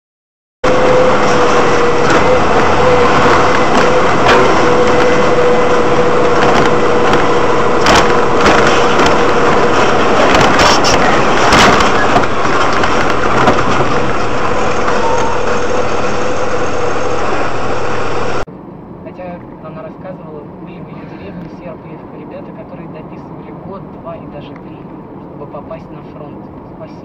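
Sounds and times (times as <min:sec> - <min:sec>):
steady whine: 0:00.6 - 0:21.8
engine and road noise in cab: 0:00.6 - 0:27.0
knocks and rattles: 0:00.9 - 0:15.8.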